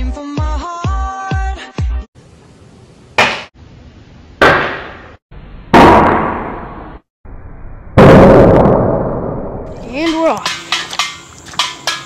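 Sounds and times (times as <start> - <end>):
sharp shot-like bangs: 5.7 - 6.8, 8.0 - 8.8.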